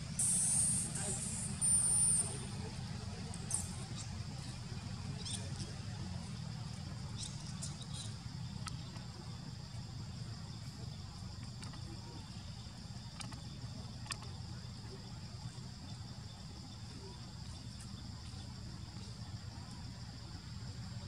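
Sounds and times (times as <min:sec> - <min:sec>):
low outdoor rumble: 0:00.0 - 0:21.0
faint high chirps: 0:00.2 - 0:02.7.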